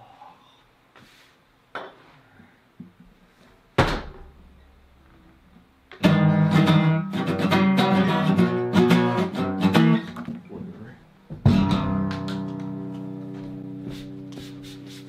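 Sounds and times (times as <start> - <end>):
heavy thump: 3.8 - 4.6, 11.3 - 12.0
acoustic guitar strumming: 5.9 - 10.5, 11.4 - 14.6.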